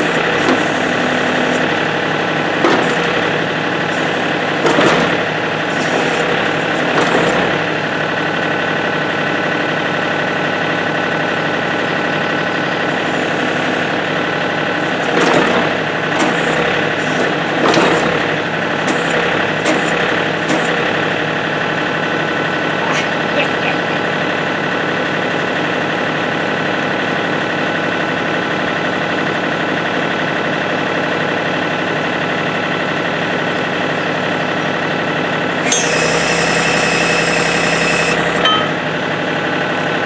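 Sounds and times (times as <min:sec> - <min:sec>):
backhoe hydraulics moving: 0:00.0 - 0:07.9, 0:12.7 - 0:21.4, 0:35.5 - 0:40.0
tractor diesel engine running: 0:00.0 - 0:40.0.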